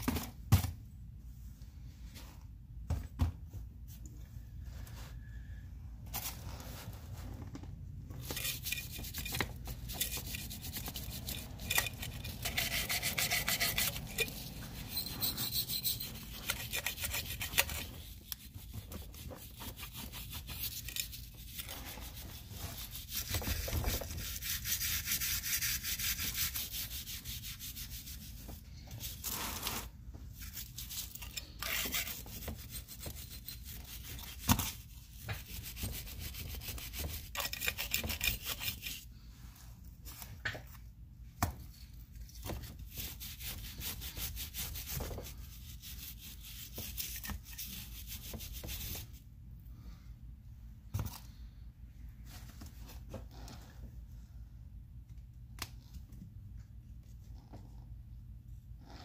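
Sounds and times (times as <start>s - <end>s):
scrubbing on metal housing: 8.2s - 18.4s.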